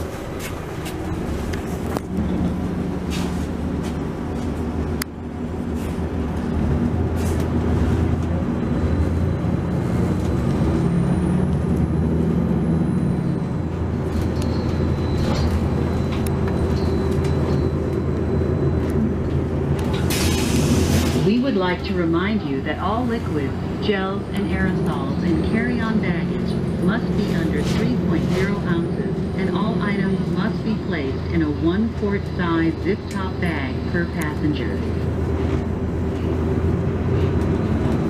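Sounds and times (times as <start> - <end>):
bus engine drone: 0.0 - 38.0.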